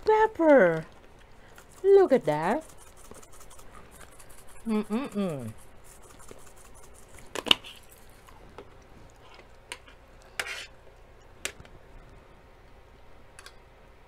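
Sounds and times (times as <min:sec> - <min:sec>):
spice jar shaking: 0:01.6 - 0:07.8.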